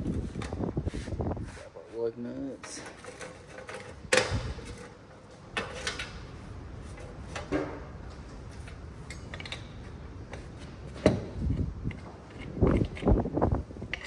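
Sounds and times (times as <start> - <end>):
metal lug nuts clinking: 9.0 - 10.4.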